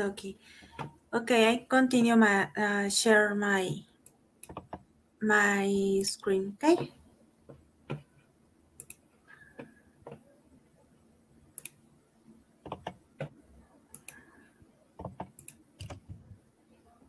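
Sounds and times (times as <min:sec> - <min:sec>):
computer mouse clicks: 0:04.0 - 0:04.9, 0:08.8 - 0:10.2, 0:11.6 - 0:11.8, 0:12.6 - 0:14.4, 0:15.0 - 0:16.3.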